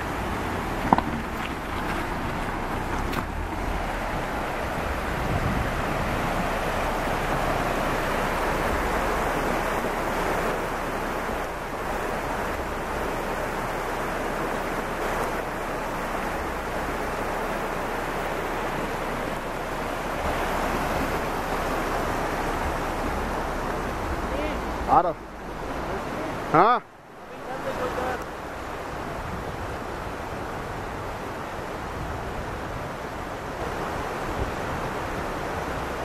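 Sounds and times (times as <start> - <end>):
stream rushing over rocks: 0.0 - 36.0.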